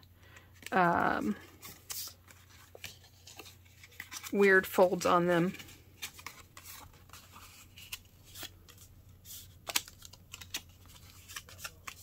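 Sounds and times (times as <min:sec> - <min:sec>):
paper rustling: 0:01.5 - 0:04.4, 0:05.5 - 0:12.0.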